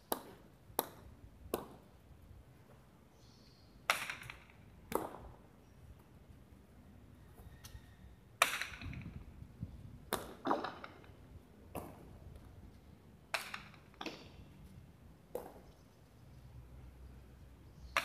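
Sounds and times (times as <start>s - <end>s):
ball cracking against walls: 8.4s - 9.2s, 10.1s - 12.0s, 13.3s - 14.3s, 15.3s - 15.7s.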